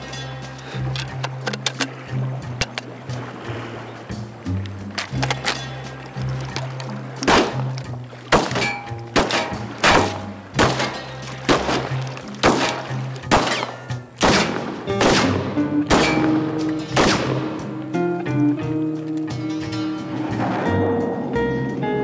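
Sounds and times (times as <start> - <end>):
background music: 0.0 - 22.0
gunshots: 7.3 - 7.6, 8.3 - 16.4, 17.0 - 17.6.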